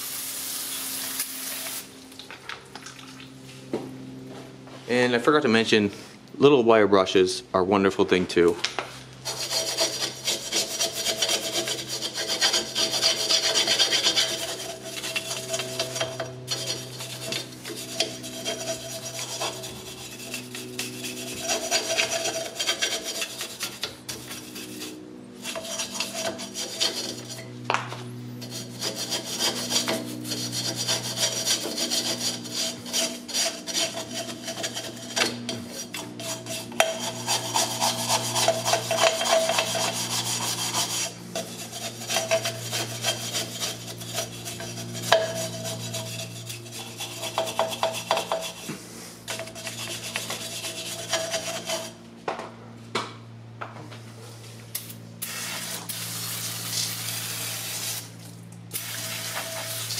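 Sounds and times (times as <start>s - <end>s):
wire brush scrubbing metal: 9.2s - 52.0s.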